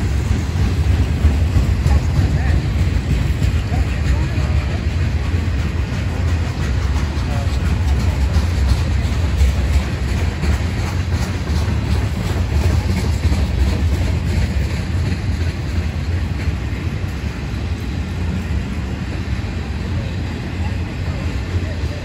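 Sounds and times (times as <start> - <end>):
wheels clicking over rail joints: 0.0 - 18.9
train wheels rumbling on rail: 0.0 - 22.0.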